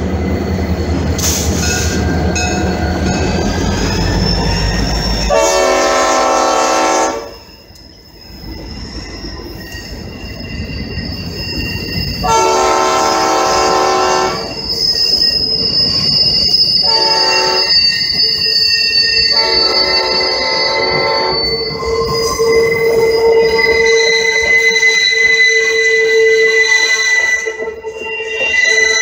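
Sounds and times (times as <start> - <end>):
high wheel squeal: 0.0 - 29.0
locomotive air horn blasts: 5.3 - 7.4, 12.2 - 14.5, 16.8 - 17.7, 19.3 - 21.3.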